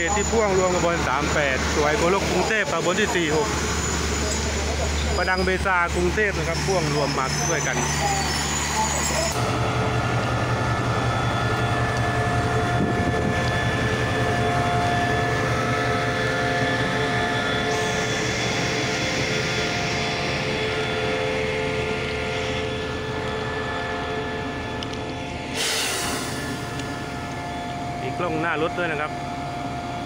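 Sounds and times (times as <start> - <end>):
locomotive engine idling: 0.0 - 17.8
constant whine: 0.0 - 30.0.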